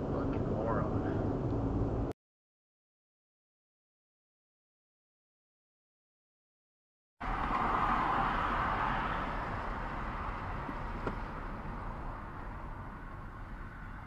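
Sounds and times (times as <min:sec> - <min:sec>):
car road and engine noise: 0:00.0 - 0:02.2, 0:07.2 - 0:14.0.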